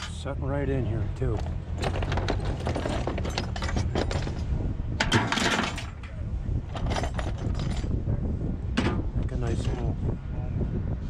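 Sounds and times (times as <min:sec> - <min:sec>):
low steady rumble: 0:00.0 - 0:11.0
steel scrap clanking: 0:01.8 - 0:08.0.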